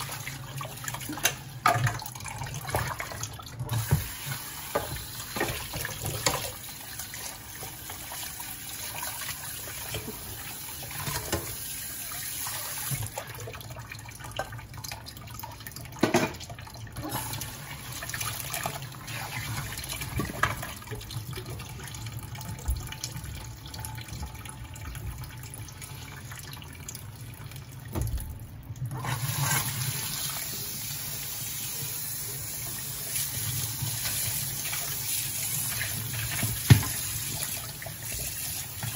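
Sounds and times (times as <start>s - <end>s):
tap water running into sink: 0.0s - 38.9s
dishes clattering against sink: 3.7s - 6.6s, 16.0s - 16.5s, 36.2s - 37.1s.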